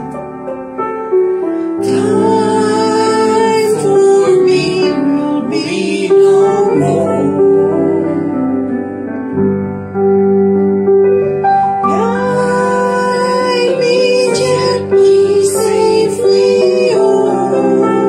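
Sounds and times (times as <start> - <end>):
piano accompaniment: 0.0 - 18.0
woman singing a hymn: 1.8 - 9.1, 11.8 - 18.0.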